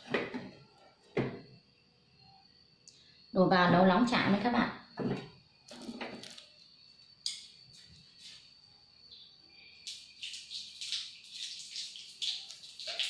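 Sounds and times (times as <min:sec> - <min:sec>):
faint high-pitched whine: 0:00.0 - 0:11.6
oil crackling in frying pan: 0:09.9 - 0:13.0.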